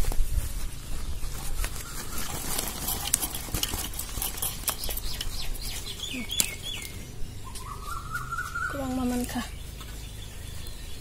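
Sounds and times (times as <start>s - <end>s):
bird chirping: 0.7s - 11.0s
fruits tapping in metal scoop: 2.0s - 6.6s.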